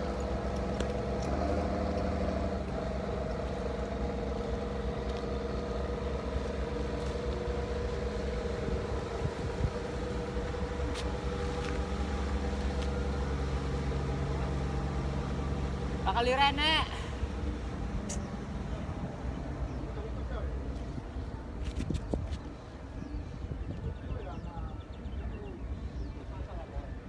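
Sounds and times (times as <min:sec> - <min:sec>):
boat engine idling: 0:00.0 - 0:21.6.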